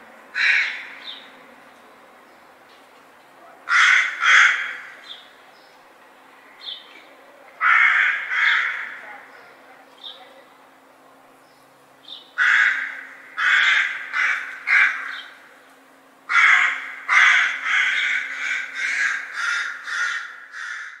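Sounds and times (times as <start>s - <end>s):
crow cawing: 0.3s - 1.2s, 3.7s - 5.2s, 7.6s - 9.3s, 12.4s - 15.5s, 16.3s - 21.0s.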